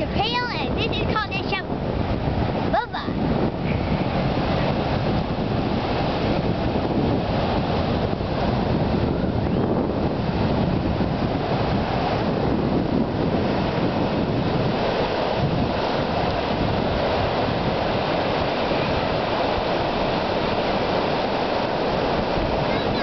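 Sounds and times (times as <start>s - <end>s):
ocean surf breaking: 0.0s - 23.0s
wind noise on microphone: 0.0s - 23.0s.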